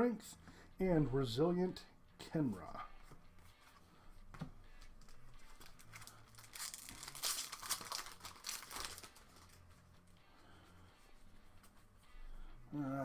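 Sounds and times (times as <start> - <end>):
foil wrapper crinkling and tearing: 5.0 - 9.6.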